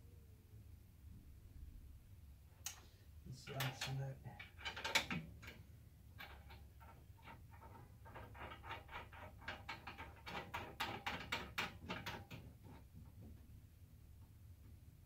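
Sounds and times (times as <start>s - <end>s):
metal clicks and scrapes: 3.4s - 12.9s.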